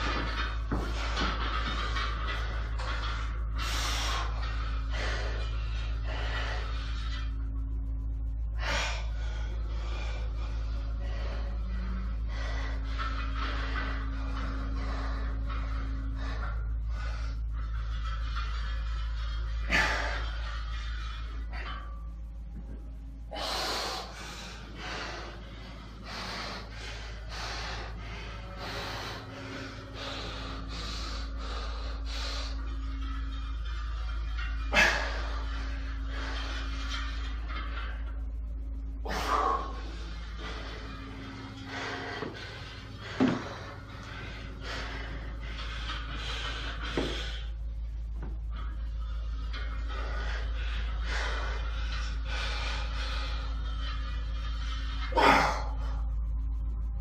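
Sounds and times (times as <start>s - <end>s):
man breathing forcefully: 0.0s - 7.5s, 23.2s - 56.2s
steady low hum: 0.0s - 57.0s.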